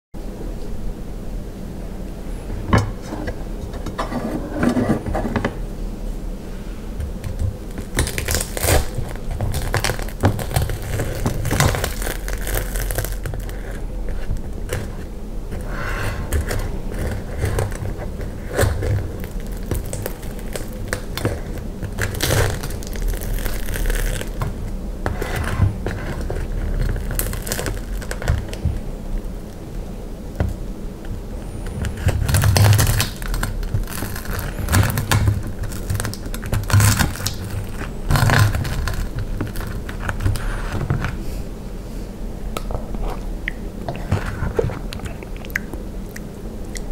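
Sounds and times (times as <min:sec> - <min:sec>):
fried coating crunching: 0:07.7 - 0:15.0, 0:16.4 - 0:24.8, 0:25.7 - 0:28.6
utensils scraping crust: 0:07.7 - 0:28.7.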